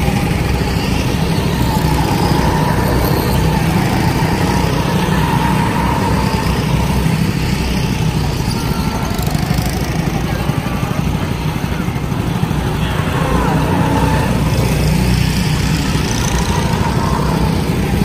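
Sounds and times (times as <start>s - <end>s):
go-kart engines running: 0.0s - 18.0s.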